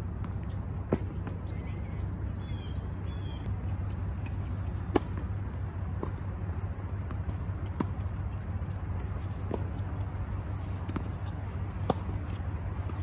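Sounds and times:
steady low rumble: 0.0 - 13.0
bird chirping: 1.5 - 3.5.

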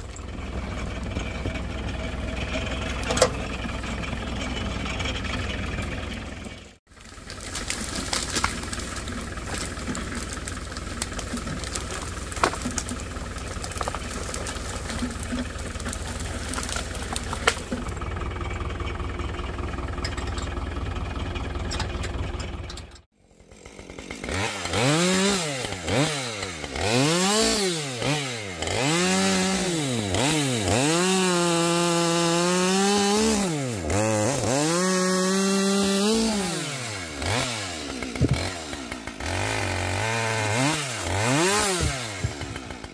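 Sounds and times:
chainsaw revving and cutting log: 0.0 - 18.4, 23.1 - 42.9
tractor engine idling: 0.0 - 24.9.

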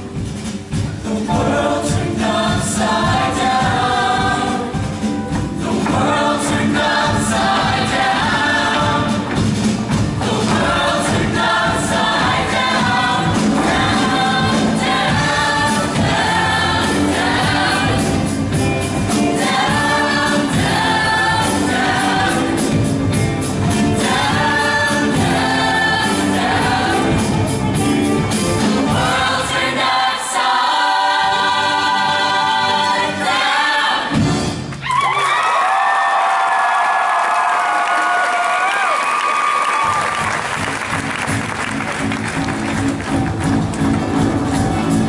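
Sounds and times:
instrumental accompaniment: 0.0 - 34.8, 40.2 - 45.0
choir singing in harmony: 0.8 - 34.8.

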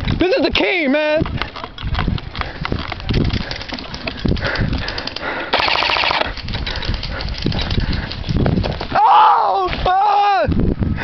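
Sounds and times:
footsteps and gear thumps: 0.8 - 9.0
scattered clicks: 1.1 - 8.8
airsoft rifle full-auto burst: 5.5 - 6.4.

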